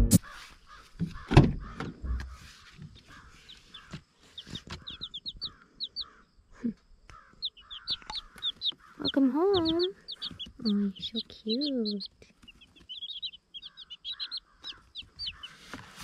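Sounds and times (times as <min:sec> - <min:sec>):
chicks peeping: 0:00.0 - 0:16.0
soft rustling: 0:14.7 - 0:16.0.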